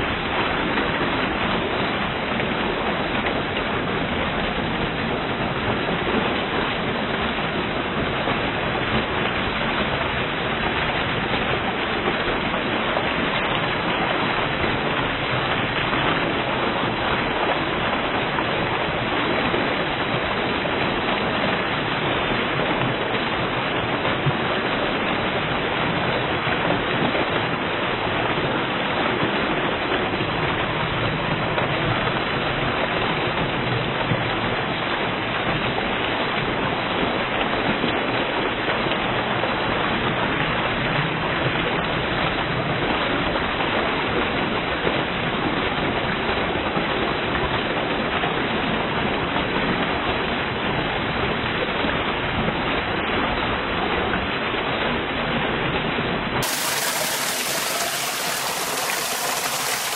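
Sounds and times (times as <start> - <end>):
waterfall rushing: 56.4 - 59.9.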